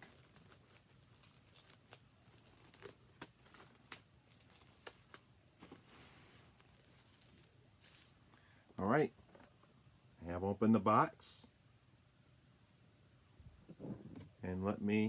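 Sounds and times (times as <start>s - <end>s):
plastic shrink wrap crinkling: 0.0s - 8.3s.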